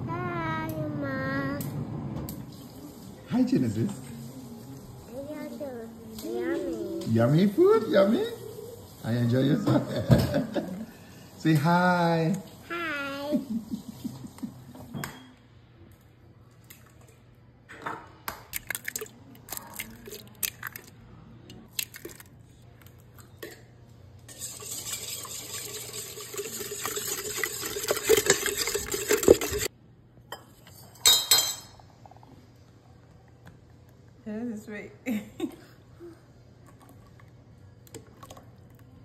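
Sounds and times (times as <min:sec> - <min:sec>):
eggs cracking: 0:18.4 - 0:23.0, 0:24.4 - 0:29.7
liquid pouring: 0:18.6 - 0:20.9, 0:21.6 - 0:22.3, 0:24.3 - 0:29.7.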